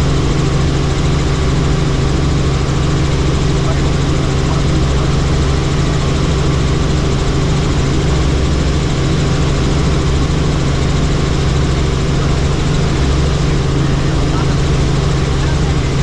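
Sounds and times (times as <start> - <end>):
helicopter engine and rotor: 0.0 - 16.0.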